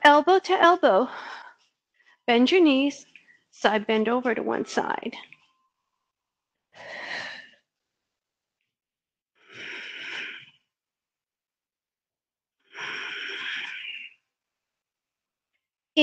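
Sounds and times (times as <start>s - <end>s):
woman breathing deeply: 6.7s - 7.7s, 9.4s - 10.7s, 12.6s - 14.2s.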